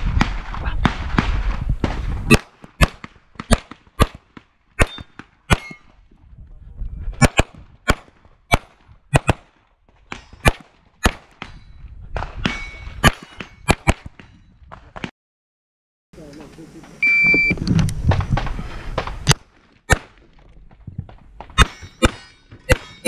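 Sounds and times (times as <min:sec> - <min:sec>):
rapid pistol shots: 0:00.1 - 0:05.8, 0:07.2 - 0:09.5, 0:10.4 - 0:11.4
metallic ring of steel targets: 0:11.4 - 0:14.5, 0:21.6 - 0:23.0.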